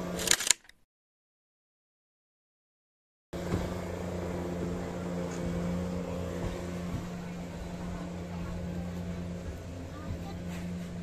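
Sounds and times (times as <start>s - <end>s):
engine droning: 3.4s - 11.0s.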